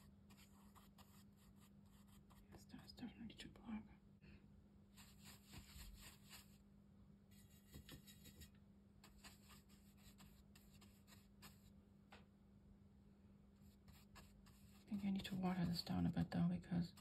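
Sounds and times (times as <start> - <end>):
brush dabbing on paper: 0.0 - 2.5, 4.9 - 6.6, 7.3 - 11.7, 13.6 - 17.0.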